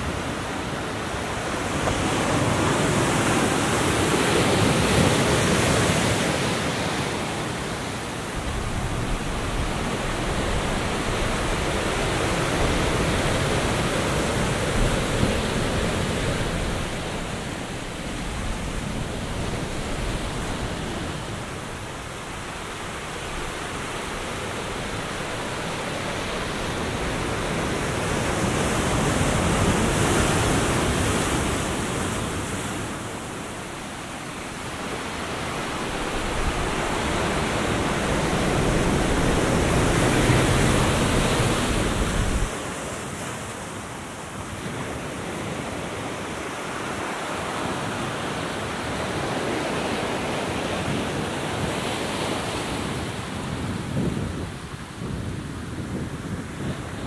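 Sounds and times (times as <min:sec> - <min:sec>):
surf breaking on beach: 0:00.0 - 0:43.5
wind rumble on microphone: 0:34.5 - 0:42.6, 0:52.6 - 0:57.0.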